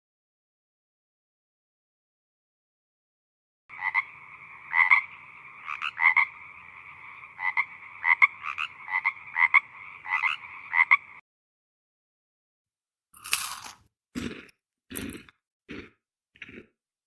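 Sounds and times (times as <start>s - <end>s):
frog croaks: 3.7s - 11.2s
tree frogs trilling chorus: 3.7s - 11.2s.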